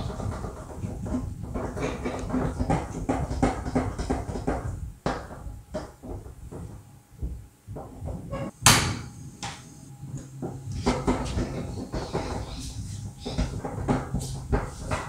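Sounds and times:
sharp knock: 0:08.6 - 0:09.1.

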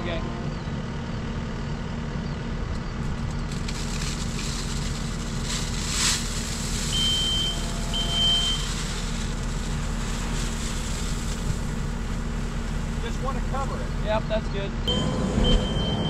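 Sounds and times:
diesel engine running: 0:00.0 - 0:16.0
gravel pouring with a hiss: 0:03.5 - 0:14.0
short high beeps: 0:14.9 - 0:16.0.

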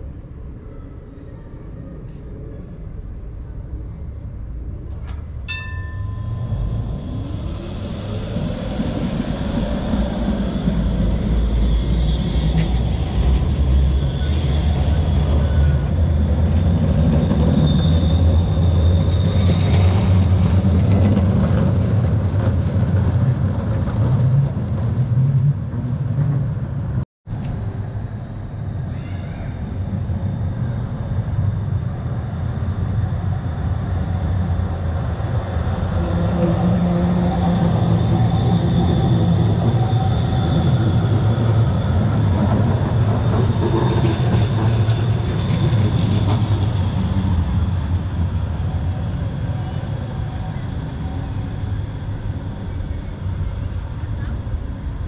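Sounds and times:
tram wheels rumbling on track: 0:00.0 - 0:55.0
short ringing tone: 0:05.5 - 0:07.3
thin high whine: 0:05.5 - 0:13.4.

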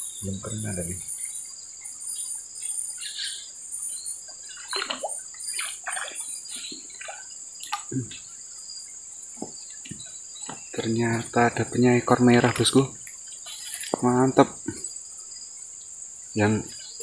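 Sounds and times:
high insect drone: 0:00.0 - 0:17.0
fish splashing at water surface: 0:04.5 - 0:06.3.

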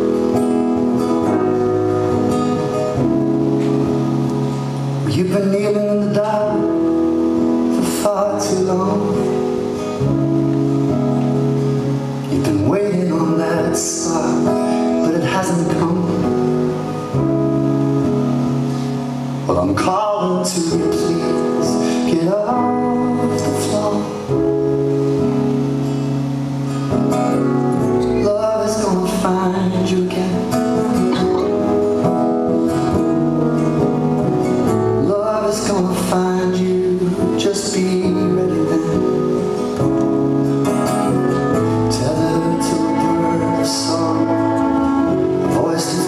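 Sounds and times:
band playing: 0:00.0 - 0:46.0
strummed acoustic guitar: 0:00.0 - 0:46.0
man singing into a microphone: 0:05.0 - 0:09.8, 0:12.2 - 0:17.0, 0:19.4 - 0:24.6, 0:27.9 - 0:31.6, 0:34.9 - 0:39.8, 0:41.4 - 0:46.0.

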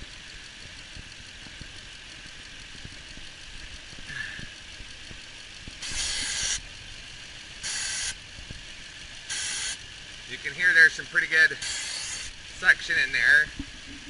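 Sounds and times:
loud air hiss from hose: 0:05.8 - 0:06.6, 0:07.6 - 0:08.2, 0:09.3 - 0:09.8, 0:11.6 - 0:12.3.

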